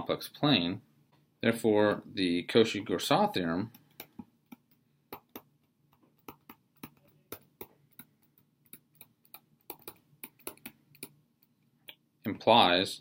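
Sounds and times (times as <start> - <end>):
stylus tapping on tablet screen: 3.7 - 12.0.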